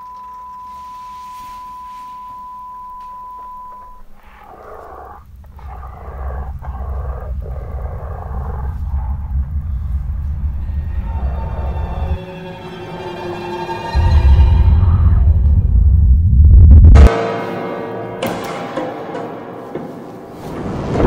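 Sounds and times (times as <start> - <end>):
deep rumbling drone: 3.2 - 17.1
hissing crackling layer: 4.0 - 12.2
scary music: 4.2 - 21.0.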